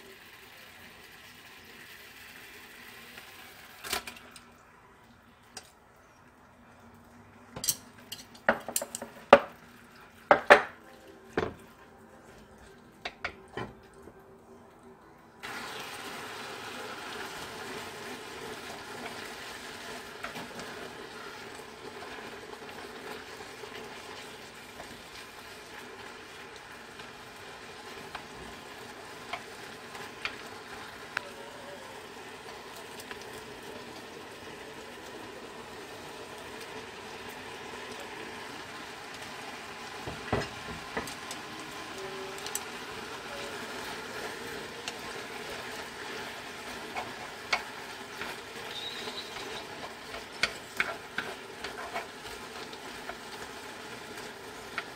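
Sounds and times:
food sizzling in frying pan: 0.0 - 5.7, 7.0 - 14.0, 15.4 - 54.9
chopsticks clicking against pan: 46.9 - 53.2.

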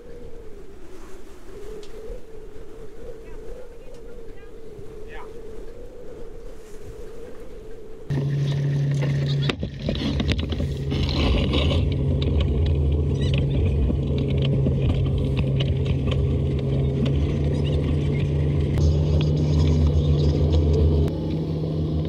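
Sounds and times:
diesel engine running: 8.1 - 22.0
knocks and rattles: 8.8 - 20.6.

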